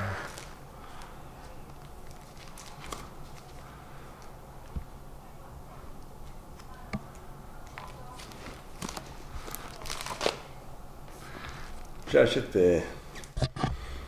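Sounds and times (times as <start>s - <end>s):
plastic sleeves crinkling: 0.0s - 4.8s, 7.6s - 10.6s.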